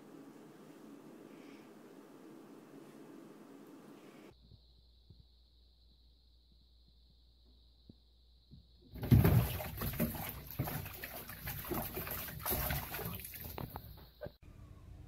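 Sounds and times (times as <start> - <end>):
loud splash: 9.0 - 13.6
cat splashing in water: 9.0 - 13.9.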